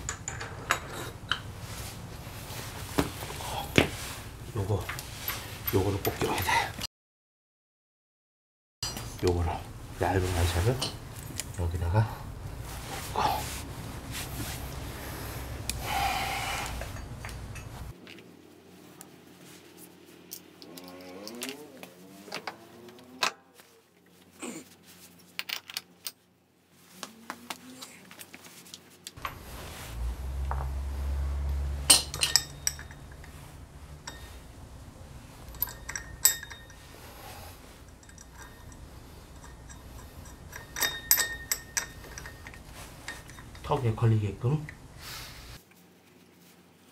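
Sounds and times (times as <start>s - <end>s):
metal parts clinking: 0.0s - 1.5s, 20.3s - 21.6s, 31.8s - 44.9s
low steady hum: 29.2s - 46.2s.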